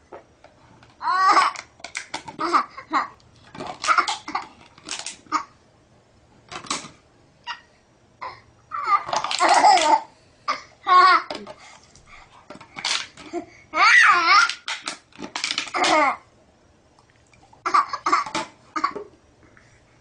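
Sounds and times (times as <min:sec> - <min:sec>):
baby laughing: 0:08.8 - 0:10.1.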